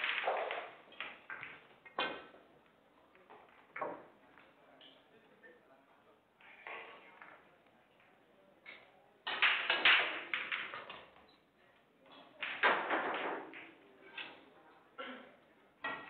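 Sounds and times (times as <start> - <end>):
billiard balls clacking: 0.0 - 5.1, 6.5 - 11.3, 12.1 - 14.5, 15.8 - 16.0.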